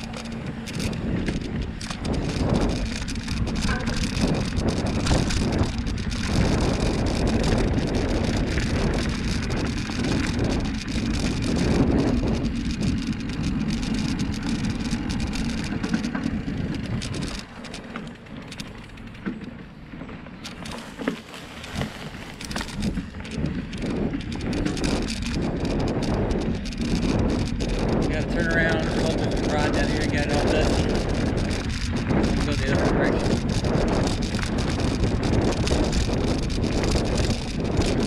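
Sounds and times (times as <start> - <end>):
bicycle tyres rattling on dirt: 0.0 - 38.0
wind buffeting microphone: 0.0 - 38.0.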